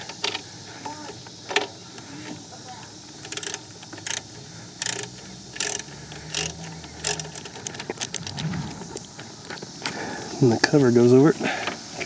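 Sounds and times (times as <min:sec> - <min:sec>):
socket ratchet clicking: 0:03.0 - 0:09.6.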